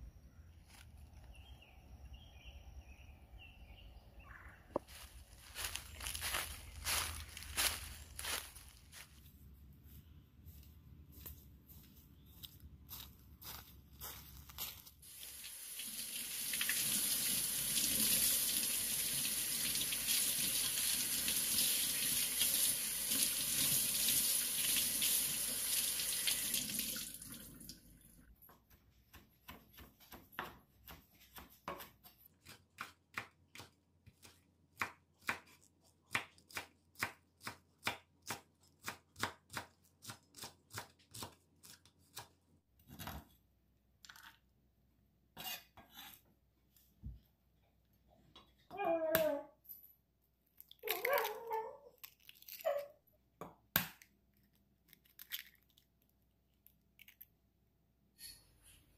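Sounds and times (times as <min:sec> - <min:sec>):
kitchen tap running: 0:15.1 - 0:27.9.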